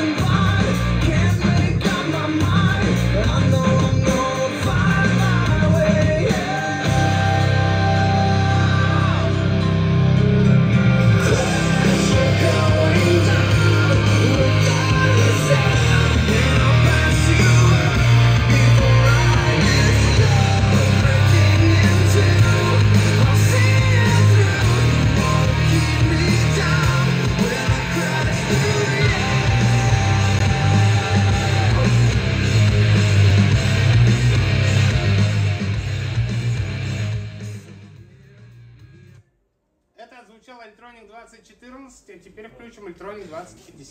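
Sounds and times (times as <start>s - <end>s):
rock song with singing: 0.0s - 39.1s.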